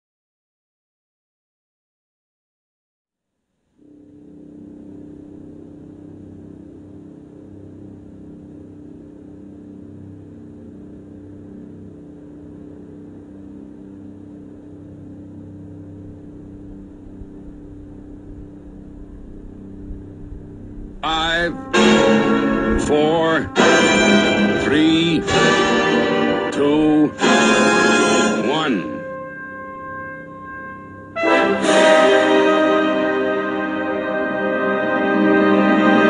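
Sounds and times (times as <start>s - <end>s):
steady mechanical hum: 3.8s - 27.4s
low rumble: 15.7s - 25.5s.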